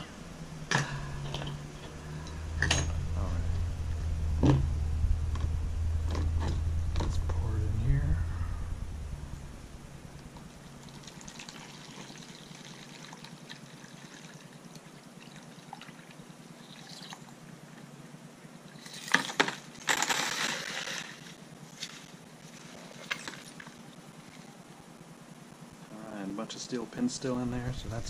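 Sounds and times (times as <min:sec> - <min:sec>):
water trickling and splashing: 0:10.7 - 0:17.5.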